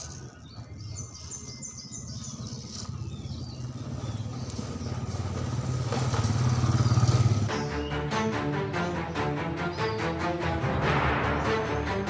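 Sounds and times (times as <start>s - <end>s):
small motor droning: 0.0s - 7.8s
bird chirping: 0.0s - 10.2s.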